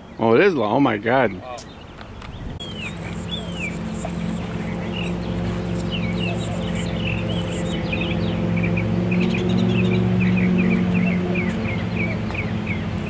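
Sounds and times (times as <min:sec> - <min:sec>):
birds chirping: 0:00.0 - 0:13.0
low engine hum: 0:02.6 - 0:13.0.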